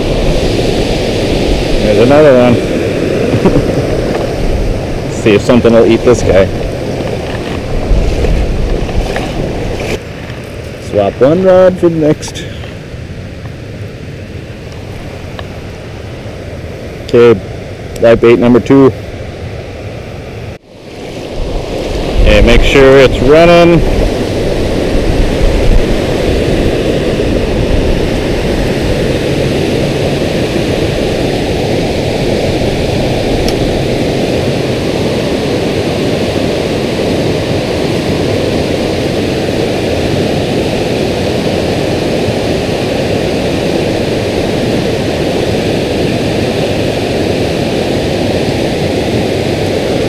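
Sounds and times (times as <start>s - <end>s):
water rushing over a spillway: 0.0s - 10.1s, 20.8s - 50.0s.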